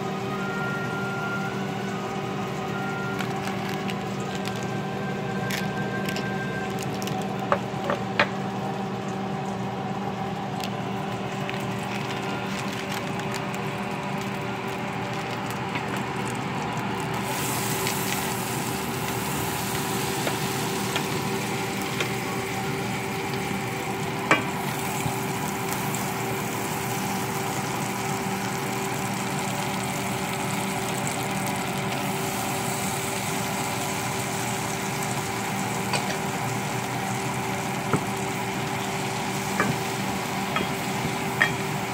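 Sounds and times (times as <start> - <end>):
butter sizzling in saucepan: 17.1 - 41.9.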